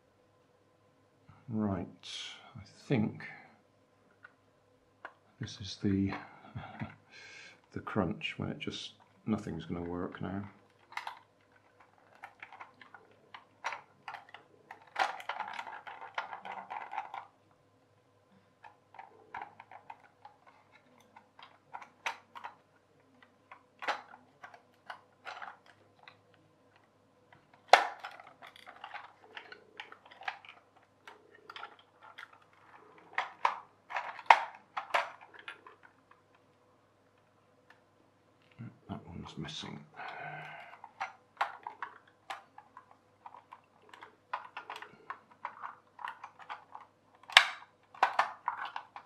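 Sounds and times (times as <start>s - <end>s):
plastic parts clicking and tapping: 6.0s - 7.0s, 8.9s - 17.4s, 18.3s - 38.6s, 40.0s - 49.0s
sharp plastic snaps: 40.2s - 49.0s.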